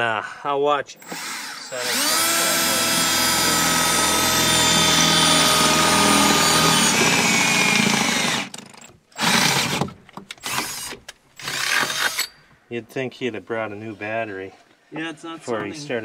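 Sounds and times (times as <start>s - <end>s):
cordless drill whining: 1.0s - 8.6s, 9.2s - 9.8s, 10.4s - 12.4s.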